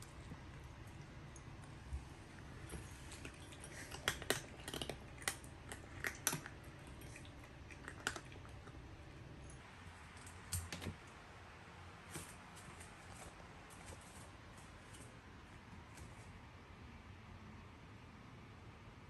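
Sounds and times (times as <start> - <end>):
cats crunching dry kibble: 0.0 - 9.2.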